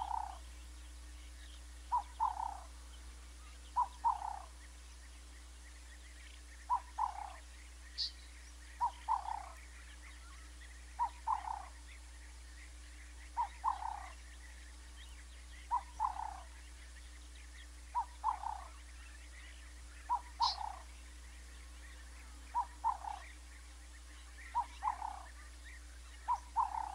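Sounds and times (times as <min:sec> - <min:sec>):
animal calling: 0:00.0 - 0:00.4, 0:01.9 - 0:02.7, 0:03.8 - 0:04.5, 0:06.7 - 0:07.4, 0:08.8 - 0:09.6, 0:11.0 - 0:11.8, 0:13.3 - 0:14.2, 0:15.6 - 0:16.5, 0:17.9 - 0:18.8, 0:20.0 - 0:20.9, 0:22.5 - 0:23.3, 0:24.4 - 0:25.3, 0:26.2 - 0:26.9
high chirps: 0:20.1 - 0:20.8.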